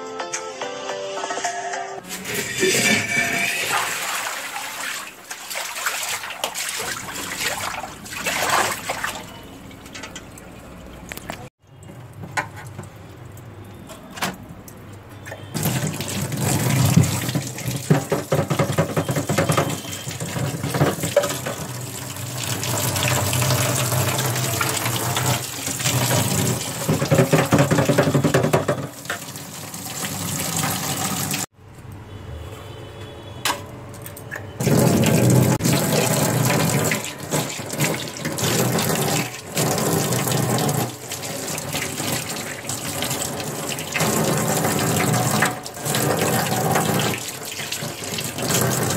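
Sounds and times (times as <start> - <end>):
brush scrubbing sink: 2.0 - 9.3, 15.6 - 21.8, 22.4 - 31.5, 34.6 - 48.9
tap water splashing into metal sink: 2.1 - 31.5, 33.4 - 48.9.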